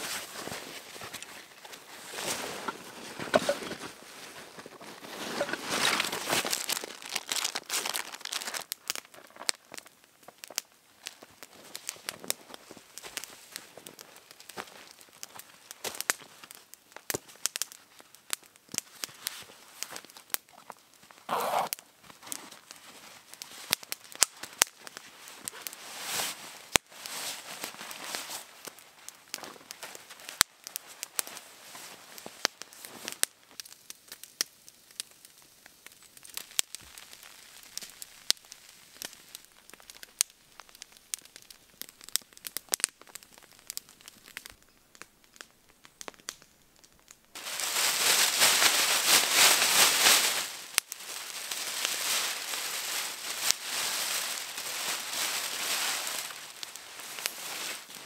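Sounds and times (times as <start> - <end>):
sleeping bag rustling: 0.0 - 8.6, 21.2 - 23.0
campfire crackling and popping: 0.0 - 58.0.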